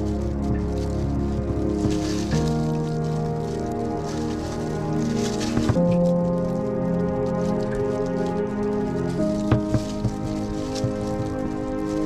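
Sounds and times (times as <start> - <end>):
faint crackle: 0.0 - 12.0
music of sustained chords: 0.0 - 12.0.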